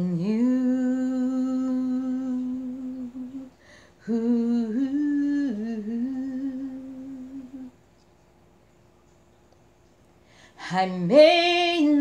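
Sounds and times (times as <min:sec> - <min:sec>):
short breath: 0:03.6 - 0:04.0.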